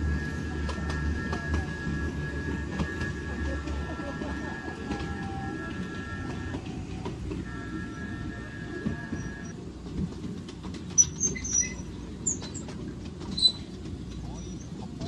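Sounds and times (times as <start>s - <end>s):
wheel squeal on curve: 0.0s - 9.6s, 10.9s - 12.7s, 13.3s - 14.8s
train wheels rumbling on track: 0.0s - 15.0s
short sharp high squeaks: 11.0s - 12.6s, 13.3s - 13.7s.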